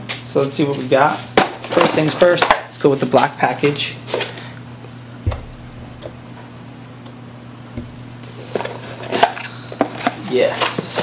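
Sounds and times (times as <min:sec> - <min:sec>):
steady low hum: 0:04.0 - 0:08.8.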